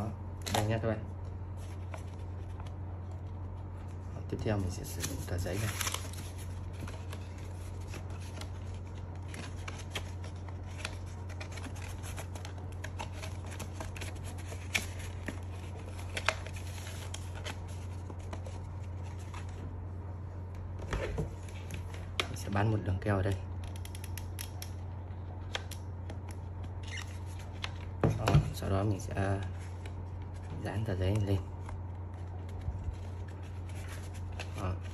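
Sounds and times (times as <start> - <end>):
paper rustling and crinkling: 1.5 - 19.7, 29.4 - 34.9.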